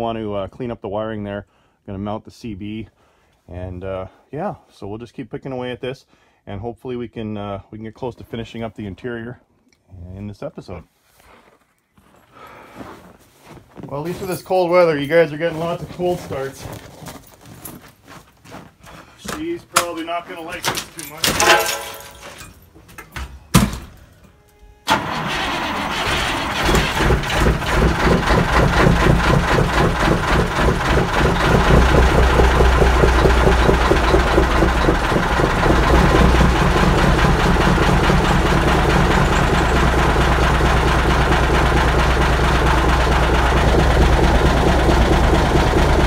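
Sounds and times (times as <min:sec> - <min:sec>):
diesel truck engine starting and idling: 0:24.8 - 0:46.0
engine knock: 0:26.6 - 0:46.0.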